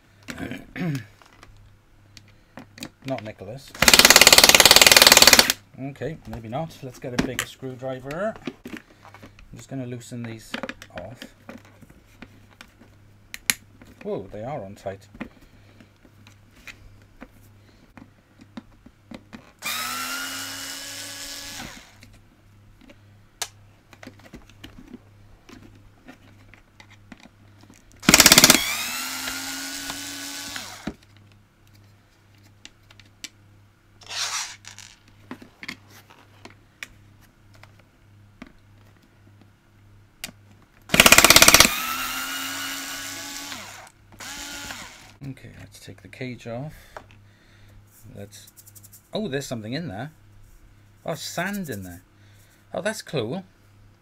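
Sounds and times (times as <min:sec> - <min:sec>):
electric screwdriver whining: 0:03.8 - 0:05.6, 0:19.6 - 0:22.0, 0:28.0 - 0:30.9, 0:40.9 - 0:45.2.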